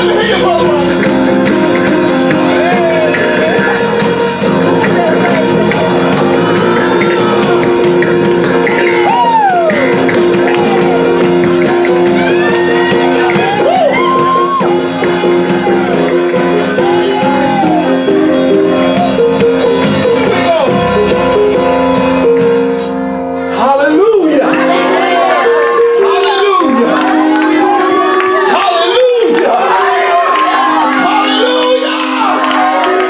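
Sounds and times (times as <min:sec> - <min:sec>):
electric bass: 0:00.0 - 0:23.6
electronic keyboard chords: 0:00.0 - 0:33.0.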